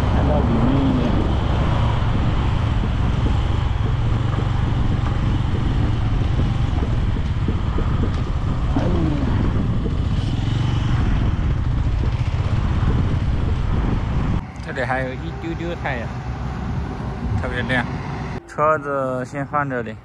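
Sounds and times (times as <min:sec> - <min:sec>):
motorcycle engine running: 0:00.0 - 0:18.4.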